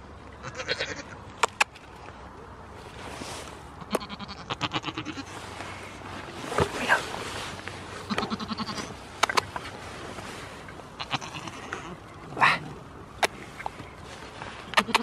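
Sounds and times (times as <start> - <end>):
goat bleating: 0.4 - 1.2, 3.8 - 5.3, 8.1 - 8.9, 11.0 - 12.0, 14.8 - 15.0.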